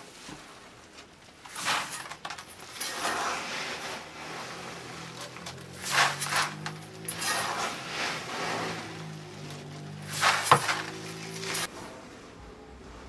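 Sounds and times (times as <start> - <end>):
grain pouring into plastic bucket: 1.5 - 11.7
sack rustling: 1.5 - 11.7.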